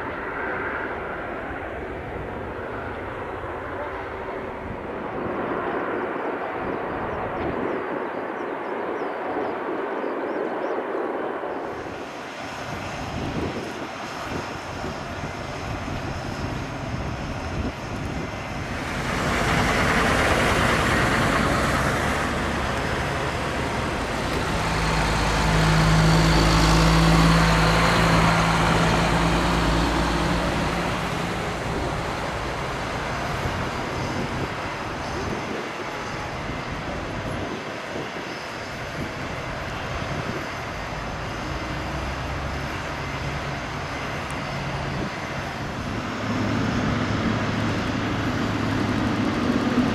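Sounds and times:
jet engine noise: 0.0s - 49.9s
diesel trucks driving past: 18.5s - 35.0s.

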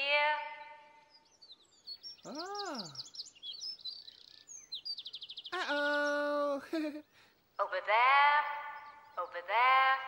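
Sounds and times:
birds chirping and trilling: 0.0s - 10.0s
person saying ooh: 2.3s - 3.0s, 5.5s - 7.0s.

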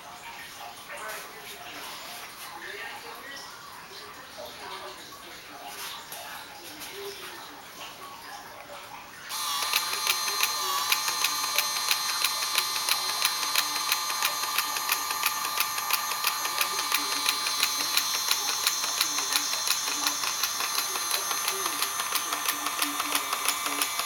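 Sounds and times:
model steam engine whining: 9.3s - 24.0s
rapid even clicking: 9.5s - 24.0s.

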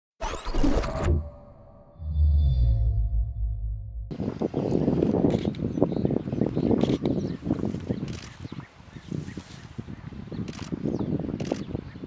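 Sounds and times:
wind buffeting microphone: 4.1s - 12.0s.

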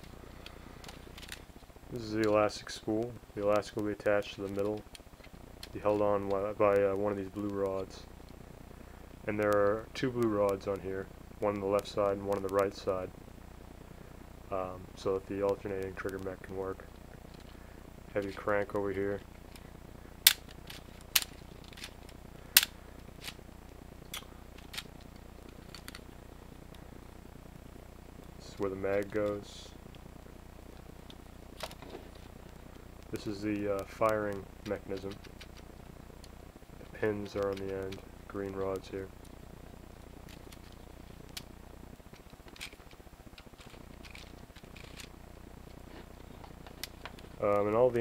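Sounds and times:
faint low hum: 0.0s - 48.0s
plastic toy gun crank clicking: 43.6s - 45.1s.

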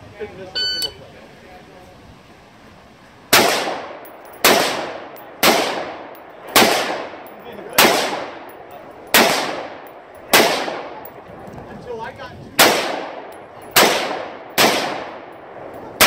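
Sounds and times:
rifle shots with echo: 3.3s - 11.2s, 12.6s - 16.0s.

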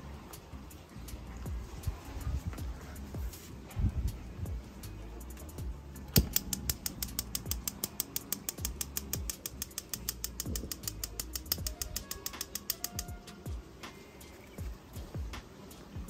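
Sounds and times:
background music: 0.0s - 16.0s
gas grill igniter clicking: 6.1s - 13.2s.

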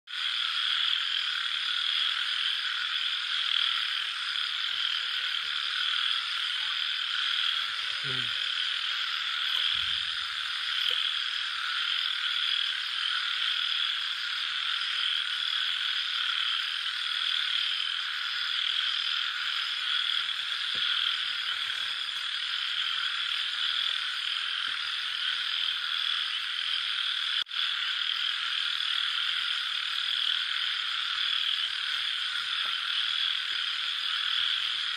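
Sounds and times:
night animal chorus: 0.1s - 34.9s.

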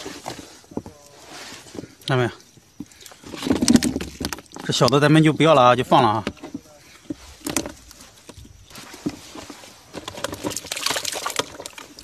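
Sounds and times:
water sloshing: 5.8s - 12.0s
fish flapping in plastic tub: 10.0s - 12.0s
fish splashing into water: 10.5s - 12.0s.

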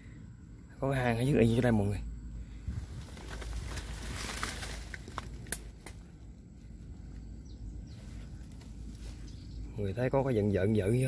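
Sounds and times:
rustling hiss: 1.4s - 9.8s.

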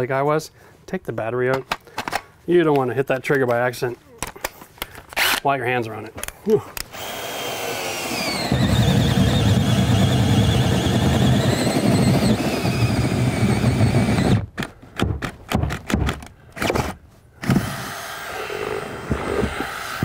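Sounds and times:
cordless drill boring through wood: 6.9s - 14.4s, 16.6s - 20.0s.

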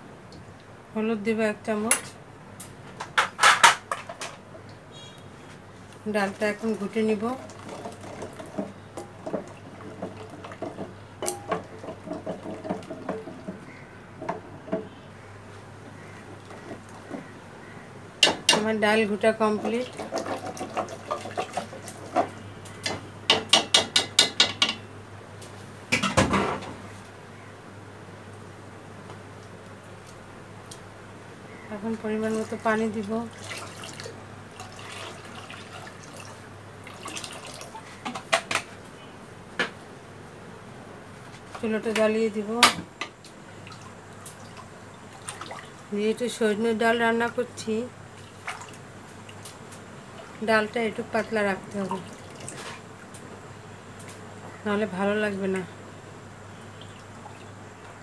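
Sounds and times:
wet stirring of lentils: 6.1s - 13.9s, 19.3s - 22.4s
water pouring and splashing: 6.3s - 13.5s, 19.6s - 22.2s, 32.3s - 37.9s, 43.6s - 45.9s, 48.1s - 50.4s, 51.7s - 53.1s
wood knocking against pot: 7.8s - 15.0s, 22.2s - 24.8s.

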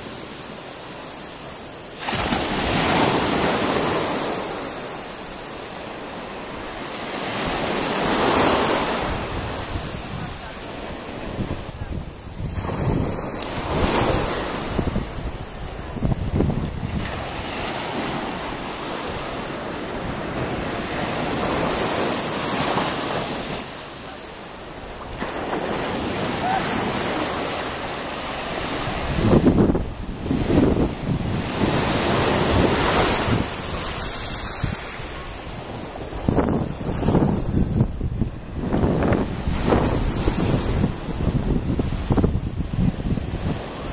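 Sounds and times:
small waves breaking on sandy shore: 0.0s - 43.9s
wind buffeting microphone: 7.2s - 22.7s, 28.3s - 43.9s.

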